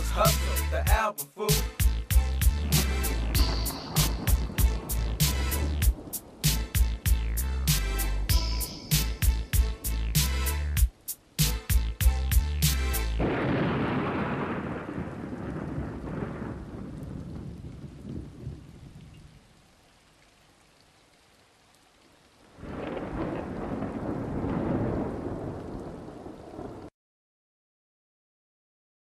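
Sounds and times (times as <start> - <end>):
rain: 0.0 - 26.9
thunder rolling: 2.6 - 9.9, 13.2 - 19.4, 22.6 - 26.9.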